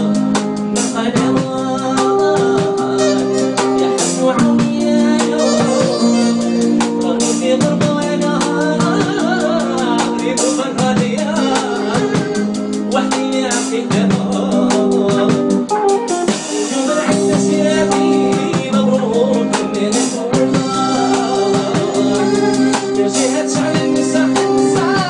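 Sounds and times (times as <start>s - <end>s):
instrumental accompaniment with drums: 0.0s - 25.0s
man singing into a microphone: 0.0s - 25.0s.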